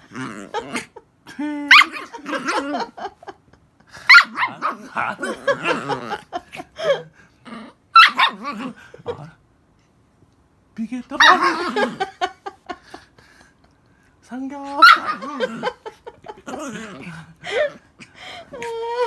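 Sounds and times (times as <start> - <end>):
dog growling: 0.0 - 2.9, 4.3 - 6.4, 15.0 - 17.8
small dog barking: 8.0 - 8.4, 14.8 - 15.3.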